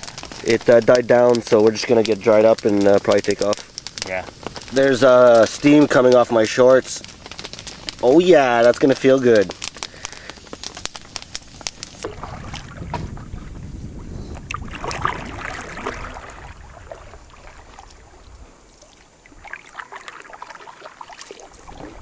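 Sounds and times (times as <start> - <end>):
campfire crackling: 0.0 - 22.0
wind buffeting microphone: 10.4 - 19.5, 21.5 - 22.0
water splashing against hull: 12.0 - 13.7, 14.4 - 22.0
low rush of water: 14.5 - 22.0.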